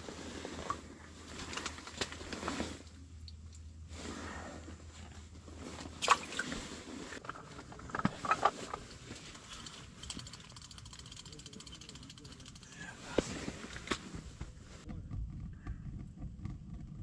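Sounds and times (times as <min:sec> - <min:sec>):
fishing reel ticking: 0:09.6 - 0:12.8.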